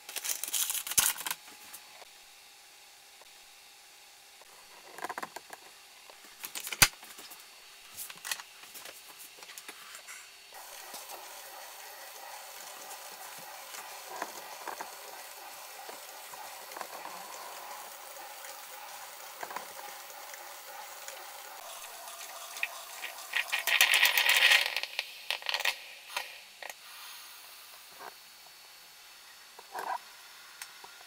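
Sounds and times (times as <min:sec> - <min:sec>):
coffee maker gurgling: 0:10.5 - 0:28.2, 0:29.6 - 0:31.0
gurgling and hissing burst: 0:10.6 - 0:24.3, 0:25.9 - 0:27.8.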